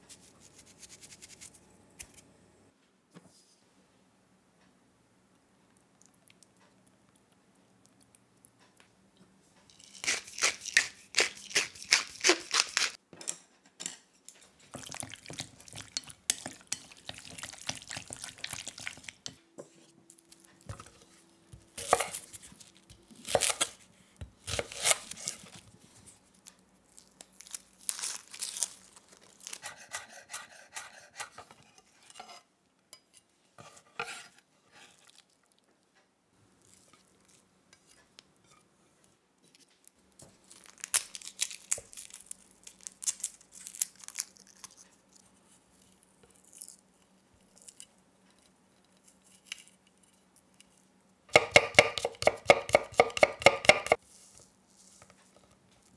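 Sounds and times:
pepper mill grinding: 9.7 - 13.0
papery skins rustling and tearing: 9.8 - 13.0, 24.4 - 29.6, 40.3 - 45.4
knife chopping on wooden board: 51.3 - 54.0.

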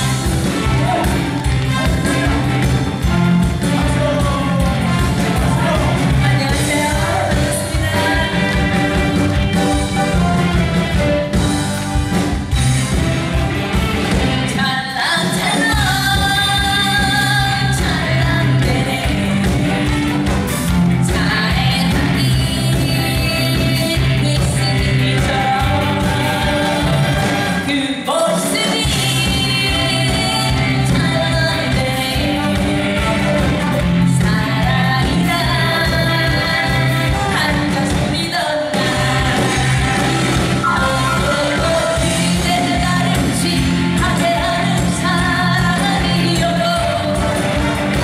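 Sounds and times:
live band with steady beat: 0.0 - 48.0
woman singing into a microphone: 3.8 - 8.7, 14.5 - 19.9, 21.0 - 26.9, 27.7 - 40.0, 40.7 - 48.0.

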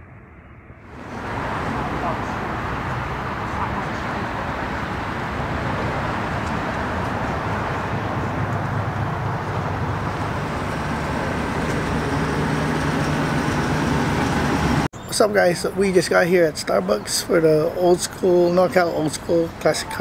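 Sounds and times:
low rumble of traffic: 0.0 - 20.0
faint engine hum: 0.1 - 14.9.

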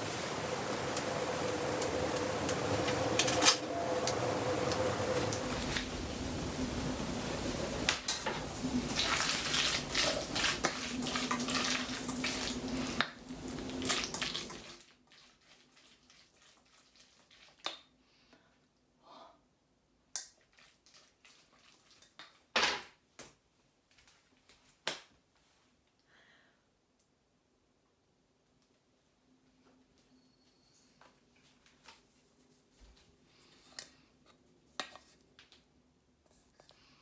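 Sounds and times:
steady hiss and low hum: 0.0 - 14.8.

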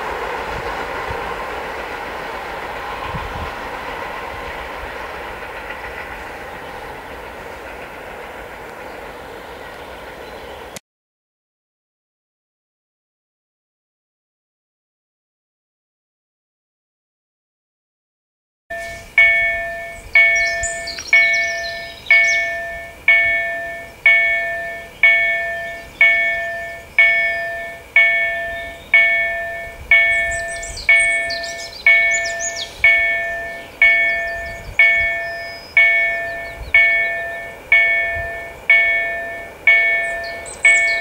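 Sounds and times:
birds chirping: 4.1 - 10.8, 18.7 - 41.0
level crossing warning bell ringing: 18.7 - 41.0.

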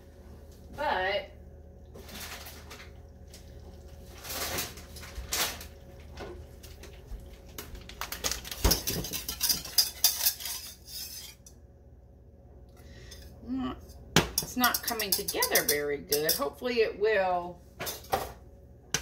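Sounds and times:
whisk scraping metal saucepan: 8.7 - 11.5.

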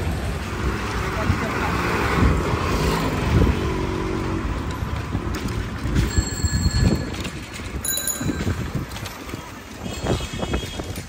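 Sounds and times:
vehicles passing: 0.0 - 11.0
bell ringing: 6.1 - 7.2, 7.8 - 8.8.

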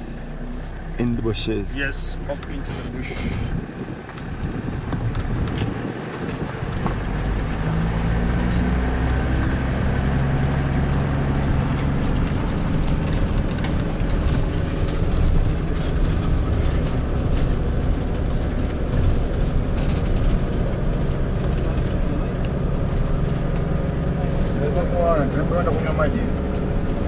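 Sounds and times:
vehicle engine running: 0.0 - 27.0
small rattles and clicks: 11.4 - 24.0.

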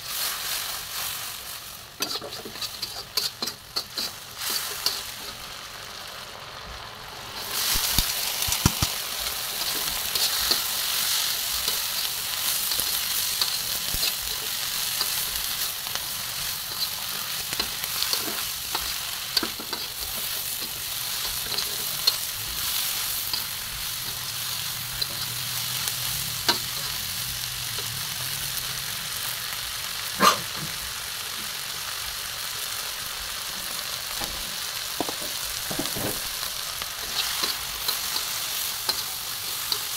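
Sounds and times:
spatula scraping a wok: 0.0 - 5.6, 7.3 - 27.9, 34.2 - 39.9
food sizzling in hot oil: 0.0 - 39.9
metal clank on wok: 2.0 - 5.4.

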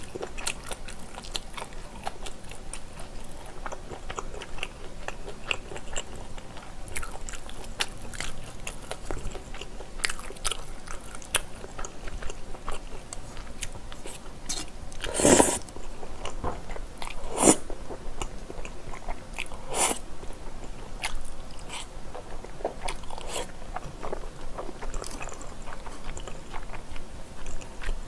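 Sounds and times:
person slurping noodles: 15.0 - 15.6, 17.2 - 17.6.

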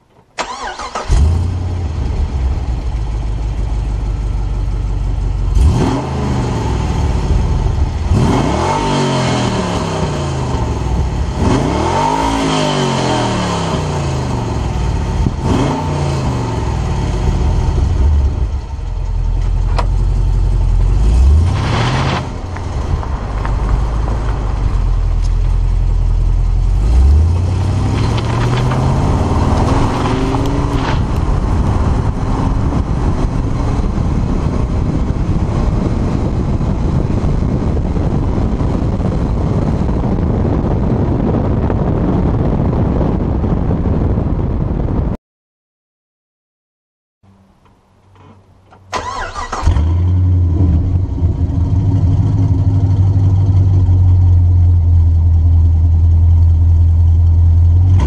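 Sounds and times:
car engine idling and revving: 0.4 - 44.9, 49.0 - 58.0
car accelerating: 5.4 - 14.6, 20.2 - 40.9.

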